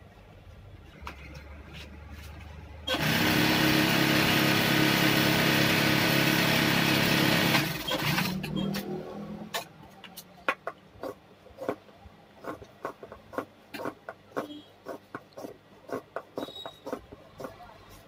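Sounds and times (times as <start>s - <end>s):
sewing machine motor hum: 2.9s - 8.9s.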